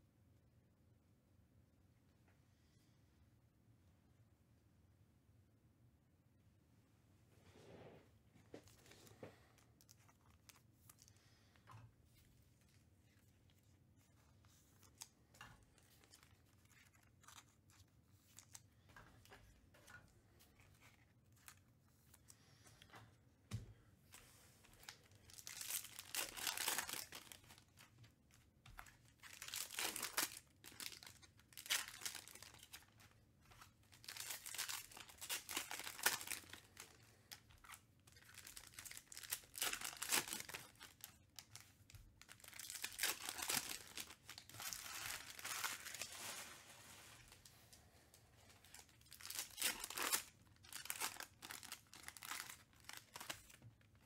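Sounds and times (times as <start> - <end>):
foil packs tearing and crinkling: 25.0 - 27.7, 29.2 - 33.0, 33.8 - 36.9, 38.1 - 41.1, 42.2 - 46.5, 48.8 - 53.6.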